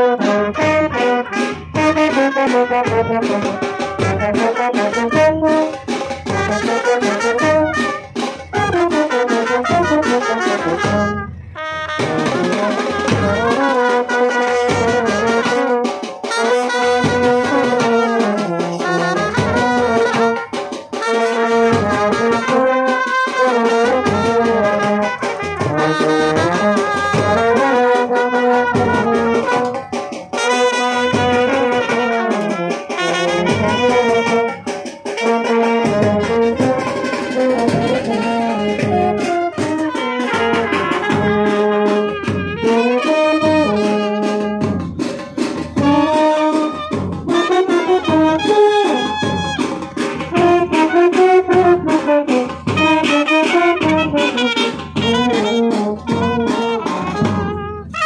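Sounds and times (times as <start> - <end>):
brass band playing: 0.0 - 58.0.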